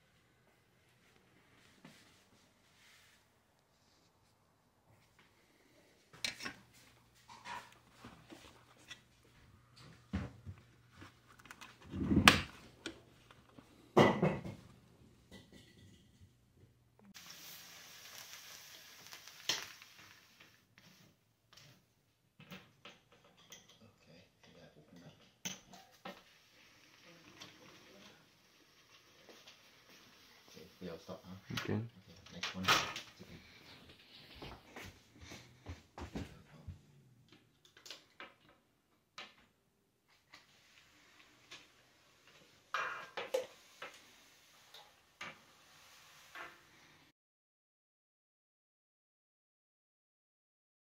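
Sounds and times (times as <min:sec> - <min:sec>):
blind fabric rustling: 0:00.1 - 0:13.9, 0:25.6 - 0:31.2, 0:40.1 - 0:47.1.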